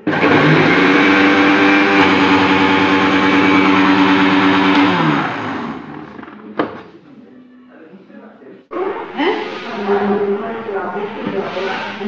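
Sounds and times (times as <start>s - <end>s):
mixer grinder motor whining: 0.0s - 6.4s.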